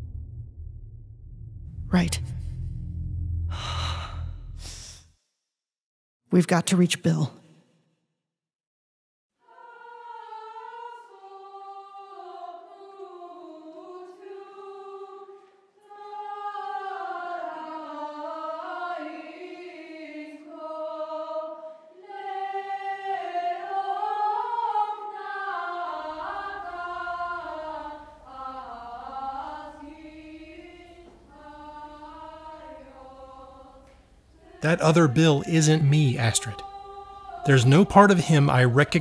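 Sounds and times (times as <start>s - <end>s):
low hum: 0.0s - 5.0s
wordless choir singing: 9.4s - 39.0s.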